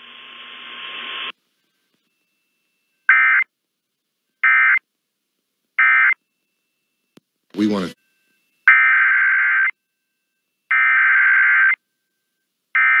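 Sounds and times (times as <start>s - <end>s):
radio hiss: 0.0s - 1.4s.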